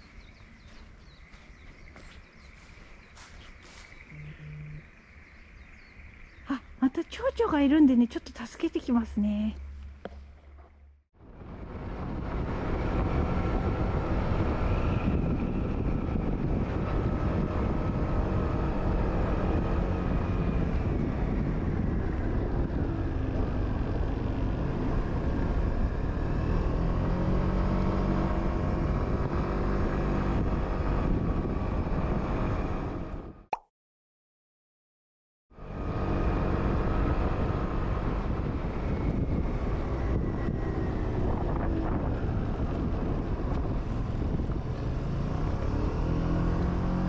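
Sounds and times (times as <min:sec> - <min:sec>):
wind rush over microphone: 0:11.2 - 0:33.4, 0:35.8 - 0:47.0.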